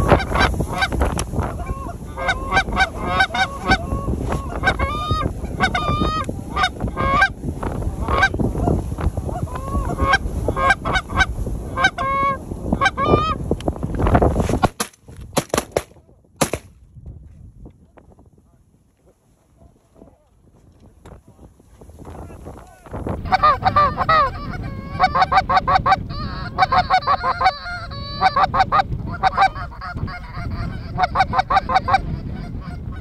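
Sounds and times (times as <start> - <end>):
geese honking: 0.0 - 7.4, 9.3 - 13.4, 23.2 - 33.0
wind noise: 0.0 - 33.0.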